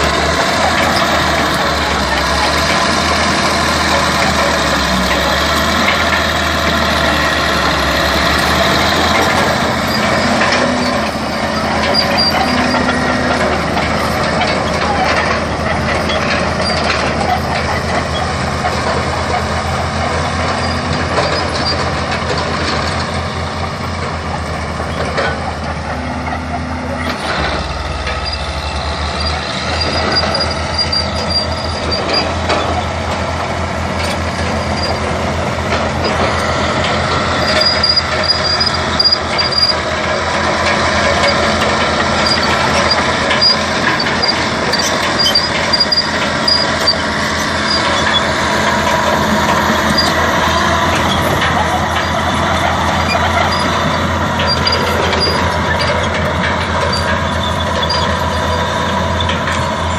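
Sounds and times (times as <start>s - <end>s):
bulldozer diesel engine: 0.0s - 59.9s
short high squeaks: 8.8s - 18.3s, 26.2s - 33.0s, 37.4s - 39.8s, 42.2s - 49.1s, 49.8s - 59.4s.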